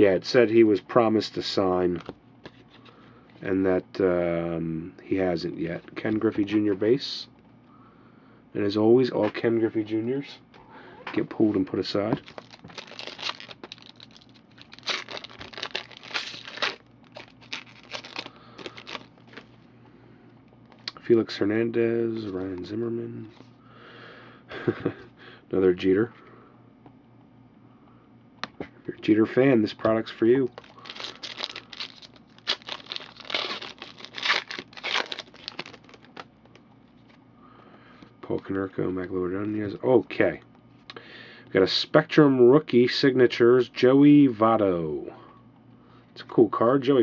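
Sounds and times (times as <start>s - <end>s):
cards being handled and flipped: 11.2s - 19.5s, 29.8s - 37.2s
plastic wrapper crinkling and tearing: 12.2s - 19.5s, 30.5s - 36.6s.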